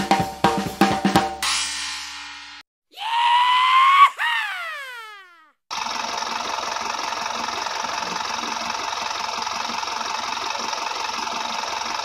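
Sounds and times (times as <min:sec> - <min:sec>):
truck engine idling: 0:05.7 - 0:12.0.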